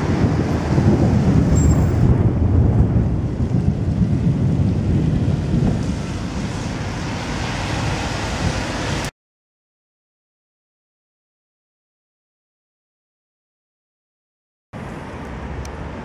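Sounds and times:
thunder rumbling: 0.0 - 9.0.

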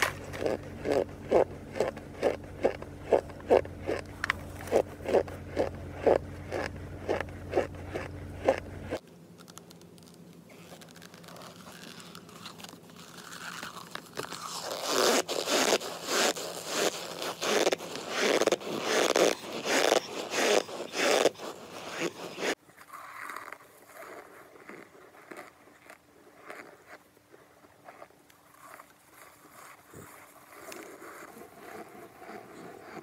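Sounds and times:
chewing hard chalky chunks: 0.0 - 33.0
low hum: 0.0 - 33.0.

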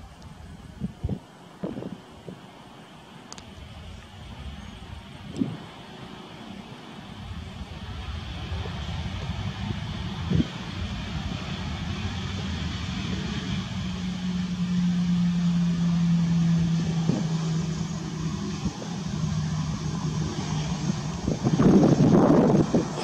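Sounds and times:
jet engines at taxi idle: 0.0 - 23.0.

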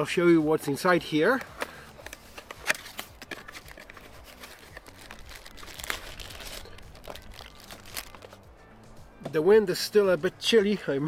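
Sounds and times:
packaging crinkling and rustling: 2.0 - 8.4.

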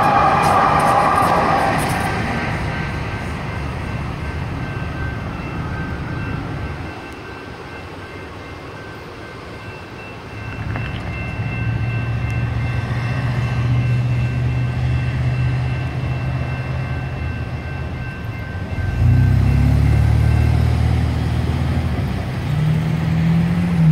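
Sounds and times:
electronic crossing bell ringing: 2.3 - 22.3
engines pulling away: 18.8 - 23.9.

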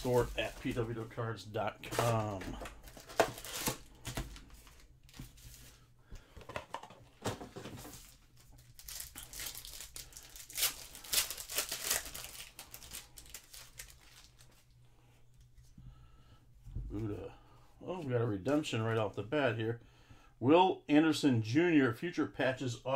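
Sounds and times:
foil wrapper tearing and crinkling: 2.0 - 4.0, 8.0 - 14.7.

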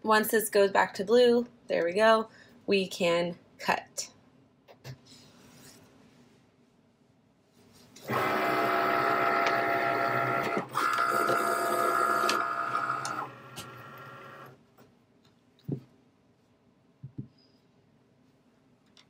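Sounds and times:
cutting machine motors whining: 8.0 - 14.6.

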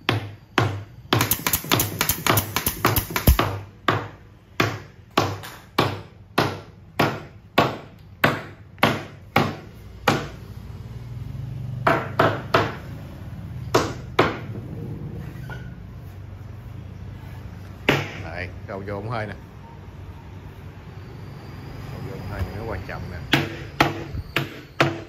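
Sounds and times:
hammering nails into wood: 0.0 - 10.4, 11.8 - 12.8, 13.7 - 14.5, 17.9 - 18.2, 23.3 - 25.0.

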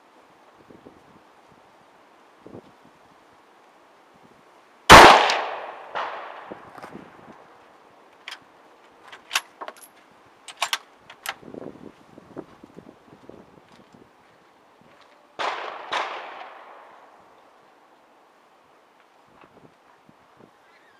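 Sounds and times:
rifle shot with echo: 4.9 - 6.6, 15.4 - 17.0
rifle bolt metallic clicks: 9.1 - 9.9, 10.5 - 11.4.

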